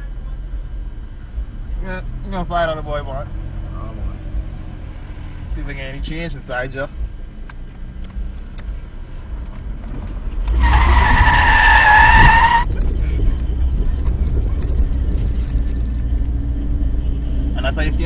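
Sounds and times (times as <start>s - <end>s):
low rumble of car: 0.0s - 18.0s
car tyres squealing: 10.4s - 16.1s.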